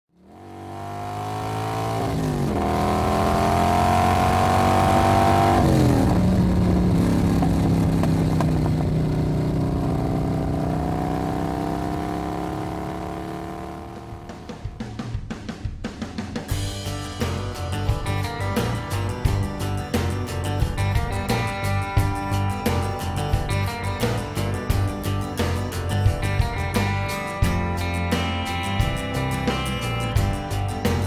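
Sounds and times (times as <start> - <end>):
vehicle engine accelerating: 0.1 - 15.2.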